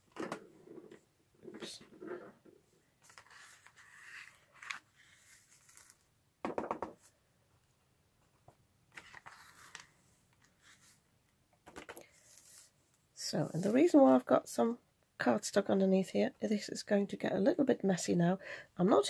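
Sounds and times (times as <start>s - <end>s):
scratchy rustling and scraping: 3.0s - 6.0s, 12.0s - 12.8s.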